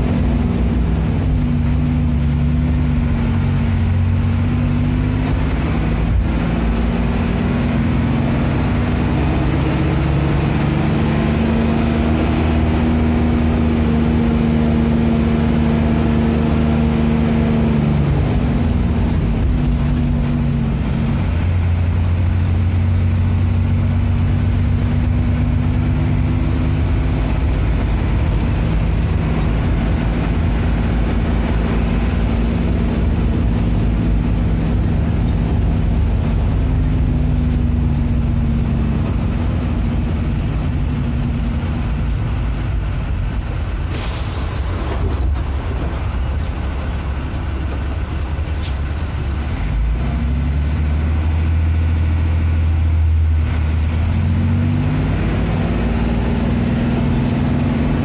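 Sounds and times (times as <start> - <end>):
bus engine drone: 0.0 - 58.0
air brakes hissing: 43.9 - 45.1, 48.5 - 49.0.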